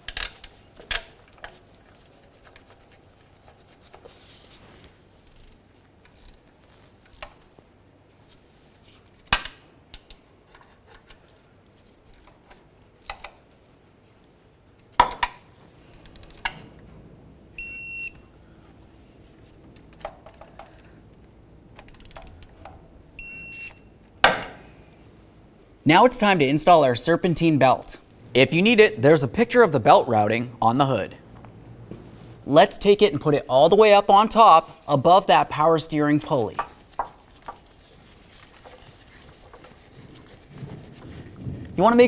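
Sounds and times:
torque wrench beeping: 17.6s - 18.3s, 23.2s - 23.9s.

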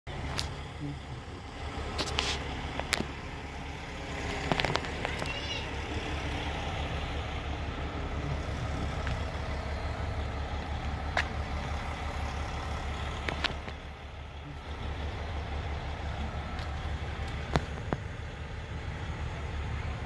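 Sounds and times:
heavy trucks rumbling: 0.1s - 20.0s.

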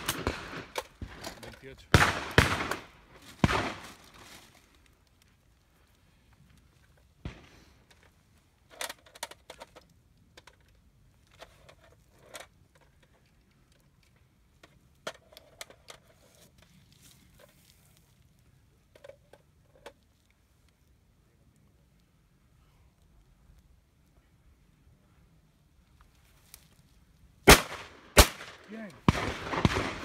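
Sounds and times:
distant shotgun shot: 0.0s - 1.2s, 1.9s - 4.0s, 7.2s - 7.8s, 27.5s - 30.0s
light clicks and metallic rattles: 7.8s - 18.0s.

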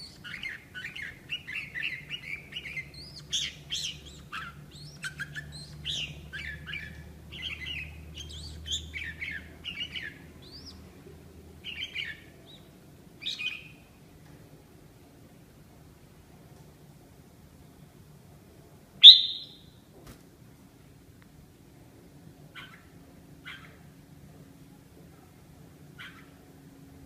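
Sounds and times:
bird chirping and warbling: 0.0s - 10.8s, 11.6s - 13.8s, 19.0s - 19.7s
bird calls: 0.0s - 10.9s, 19.0s - 19.7s, 22.6s - 23.9s.

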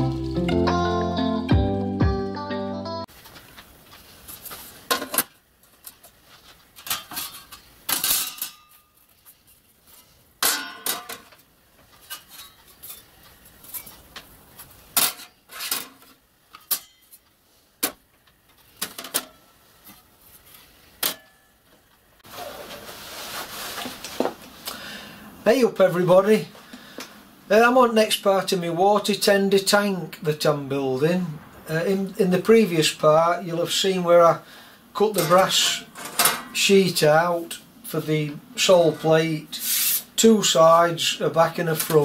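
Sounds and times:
soft rustling shuffle: 3.1s - 4.9s, 5.7s - 6.8s, 22.2s - 24.6s
metal sheets clanking: 10.4s - 11.3s, 35.1s - 36.7s.

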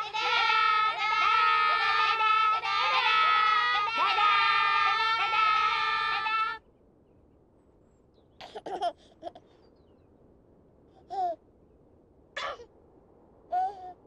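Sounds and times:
children's choir singing: 0.0s - 6.6s.

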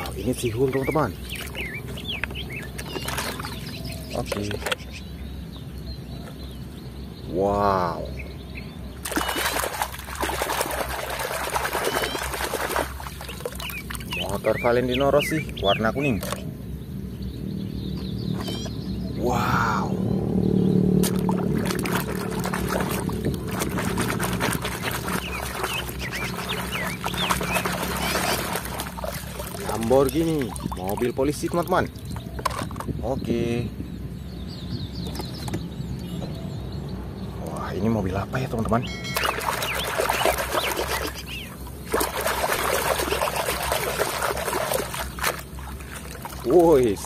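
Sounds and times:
water splashing in a tub: 0.0s - 4.8s, 8.9s - 16.4s, 20.9s - 32.7s, 39.1s - 47.0s
steady low hum: 0.0s - 37.9s
short high chirps: 38.8s - 40.0s.

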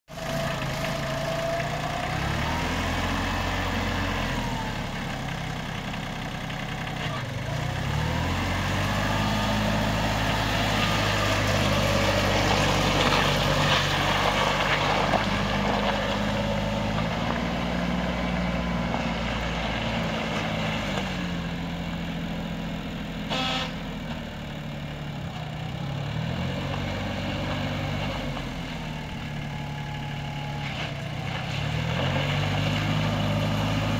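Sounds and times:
tractor engine revving: 0.1s - 33.9s.

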